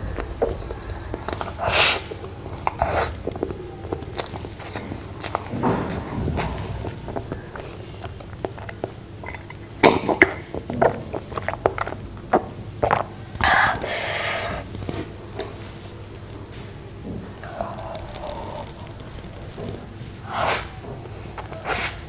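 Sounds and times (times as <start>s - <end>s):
chewing soft cake: 0.0s - 22.0s
mouth clicks and swallows: 6.4s - 15.1s
breathy burst from mouth: 20.2s - 20.8s, 21.6s - 22.0s.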